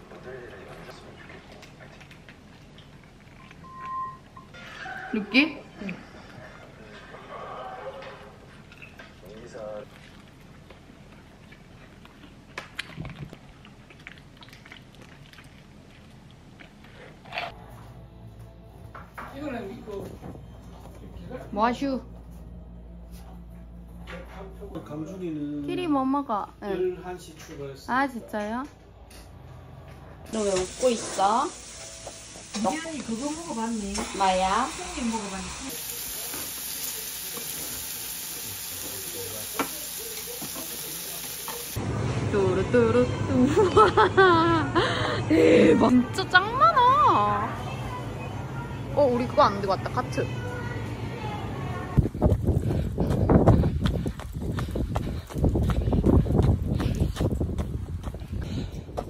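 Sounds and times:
chewing: 0.8s - 3.6s, 7.8s - 17.6s
meat sizzling on a griddle: 30.4s - 41.8s.

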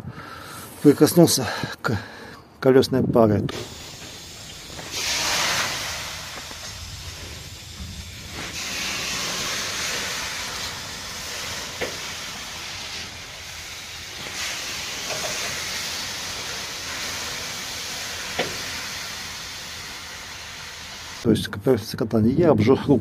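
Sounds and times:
steady hiss from hot wheel: 3.5s - 21.2s.

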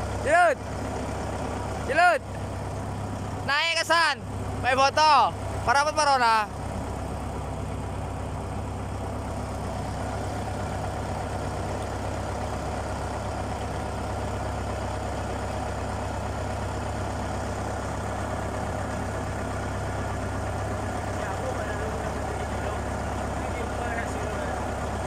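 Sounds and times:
boat engine droning: 0.0s - 25.0s.

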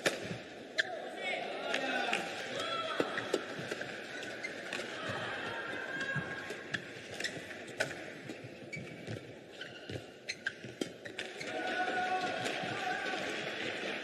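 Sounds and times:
shoes squeaking on court: 3.0s - 5.2s, 6.1s - 11.6s.

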